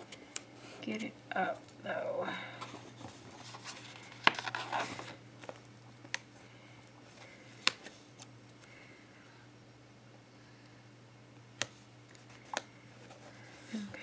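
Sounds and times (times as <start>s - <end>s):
paper rustle: 2.6s - 5.6s.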